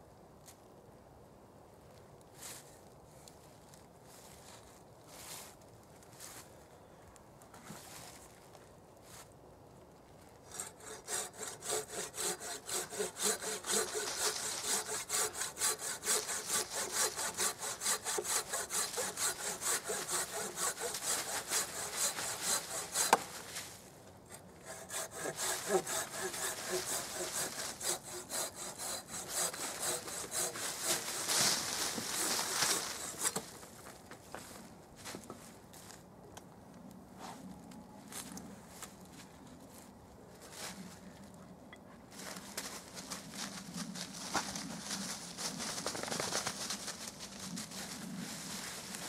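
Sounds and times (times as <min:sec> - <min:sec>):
hand saw rasping through log: 0:10.5 - 0:23.4, 0:24.6 - 0:33.4.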